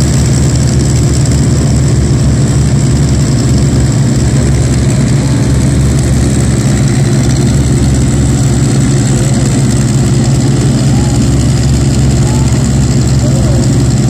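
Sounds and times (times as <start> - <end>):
radial aircraft engine idling: 0.0 - 14.0.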